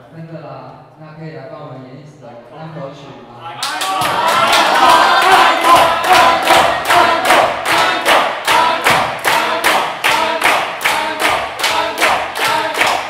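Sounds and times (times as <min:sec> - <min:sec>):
crowd calling out: 0:03.4 - 0:13.0
audience clapping in rhythm: 0:03.6 - 0:13.0.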